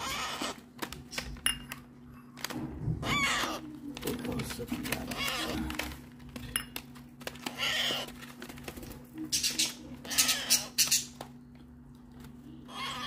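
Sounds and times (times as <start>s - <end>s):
parrot chicks squawking: 0.0s - 0.8s, 2.8s - 4.2s, 4.8s - 6.0s, 7.2s - 11.3s, 12.6s - 13.0s.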